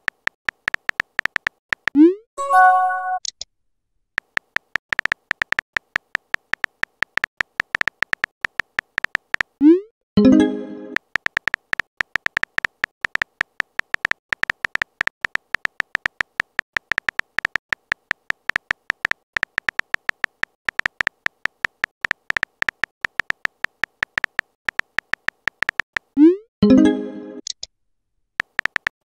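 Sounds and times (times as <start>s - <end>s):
phone keyboard typing clicks: 0.0s - 2.0s, 4.2s - 9.6s, 10.9s - 26.2s, 28.4s - 29.0s
short message sent tone: 2.4s - 3.2s.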